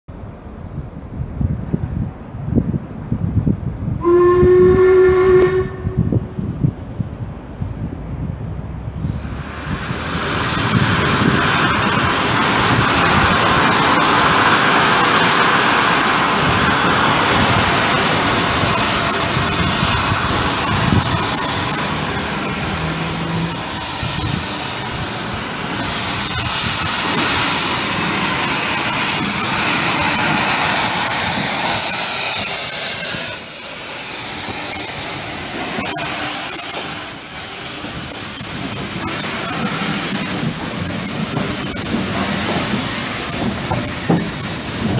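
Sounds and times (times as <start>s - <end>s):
train running on rails: 0.1s - 44.9s
steam hissing: 9.0s - 44.9s.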